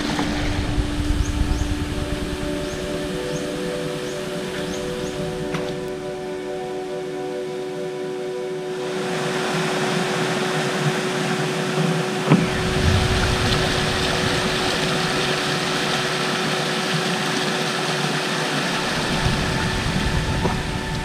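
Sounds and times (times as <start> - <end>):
stream flowing over rocks: 8.8 - 21.0.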